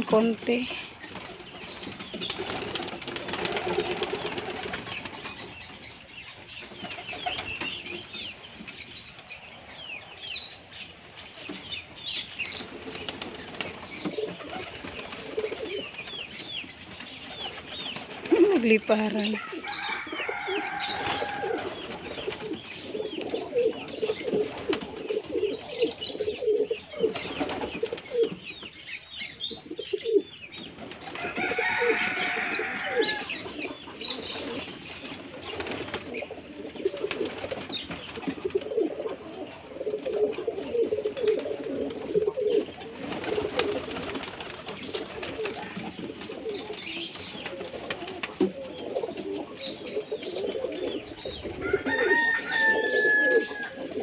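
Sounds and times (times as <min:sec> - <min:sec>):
pigeons cooing: 0:00.0 - 0:54.0.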